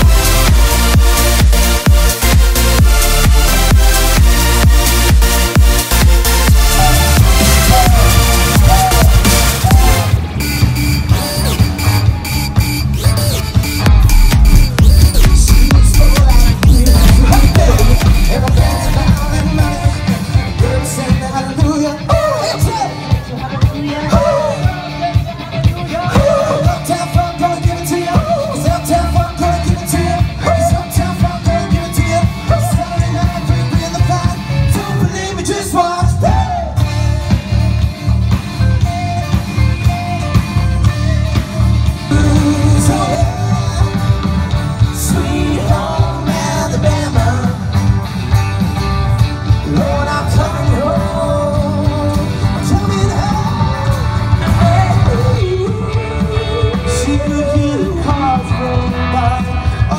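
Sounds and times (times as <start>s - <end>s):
live rock band playing: 0.0s - 59.9s
person singing: 6.1s - 10.2s, 14.2s - 47.8s, 49.6s - 59.9s.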